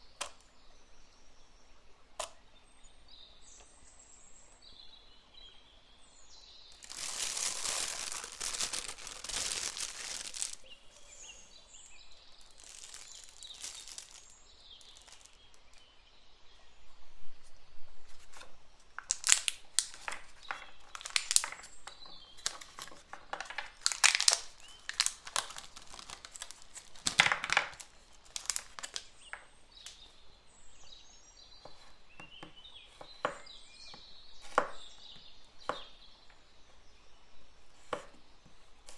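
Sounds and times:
thin plastic crinkling: 6.7s - 15.9s, 18.1s - 30.1s.

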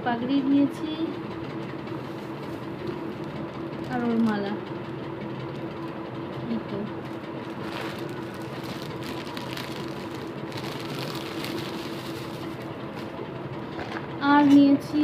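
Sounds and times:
steady low hum: 0.0s - 15.0s
plastic bag crinkling: 2.2s - 4.5s, 7.0s - 13.2s.

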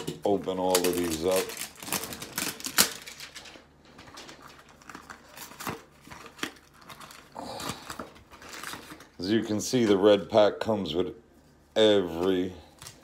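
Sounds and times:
packaging rustling: 0.0s - 10.0s
plastic wrap crinkling: 0.0s - 10.3s
cardboard ripping: 0.5s - 3.4s.

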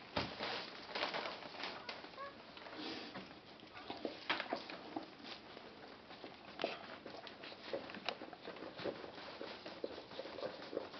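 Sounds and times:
rustling on newspaper bedding: 0.0s - 3.2s.

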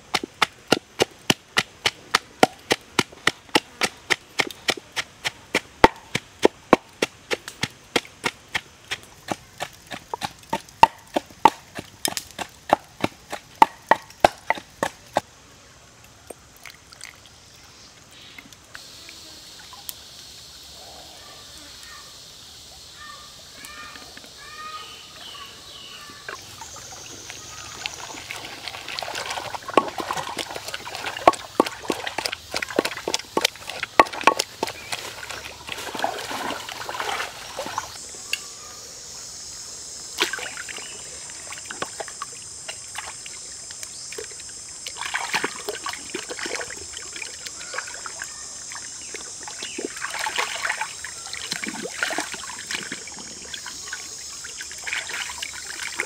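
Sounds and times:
pestle pounding in wooden mortar: 0.0s - 15.2s, 29.0s - 36.4s
steady high hiss: 0.0s - 56.0s
cleaver chopping on wooden board: 0.1s - 15.2s, 32.8s - 34.7s
water splashing: 26.0s - 38.0s, 40.2s - 56.0s.

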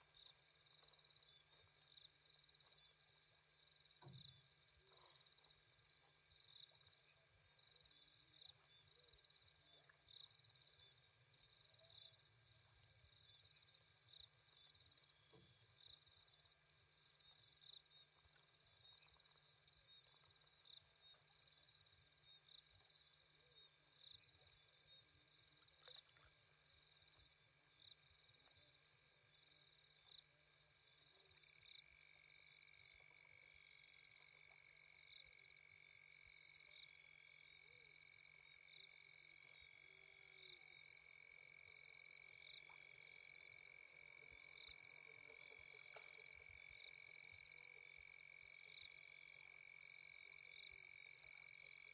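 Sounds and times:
crickets chirping: 0.0s - 51.9s
insect continuous low trill: 0.0s - 51.9s.

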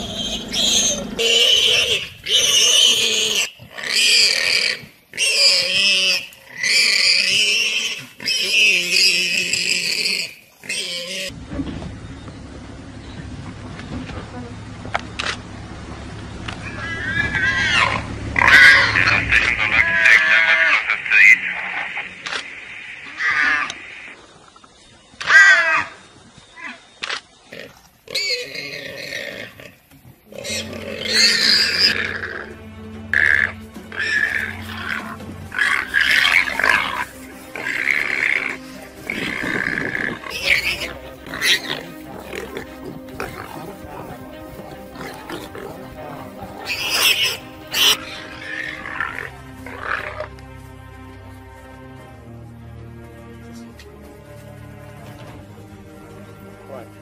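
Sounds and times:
warthog squealing: 0.0s - 11.4s, 16.6s - 24.1s, 25.2s - 26.0s, 27.5s - 50.3s.

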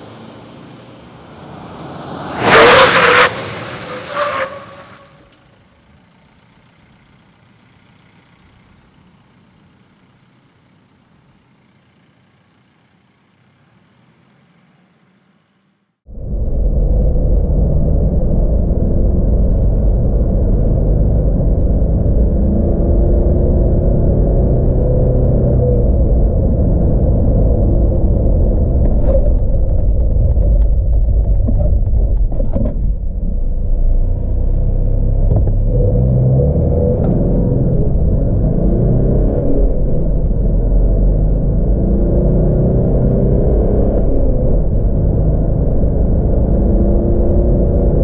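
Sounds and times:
diesel engine accelerating: 16.2s - 48.0s.

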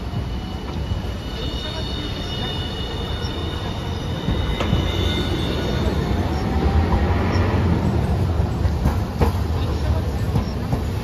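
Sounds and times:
high wheel squeal: 0.0s - 7.9s
tram wheels rumbling on track: 0.0s - 11.0s.

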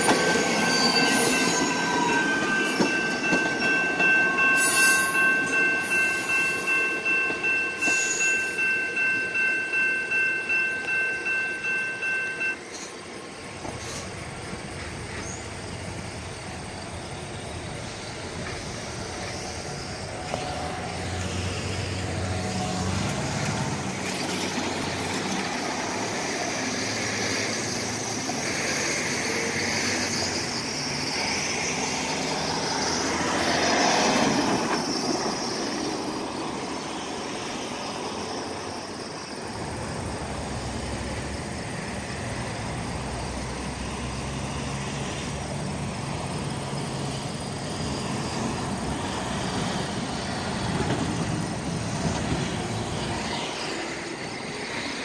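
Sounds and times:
cars driving over tracks: 0.0s - 55.0s
hiss of tyres: 4.4s - 7.0s, 13.6s - 16.6s.

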